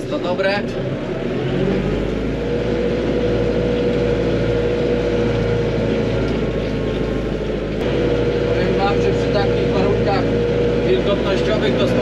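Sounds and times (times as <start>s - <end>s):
tractor engine running under load: 0.0s - 12.0s
steady whine: 0.1s - 12.0s.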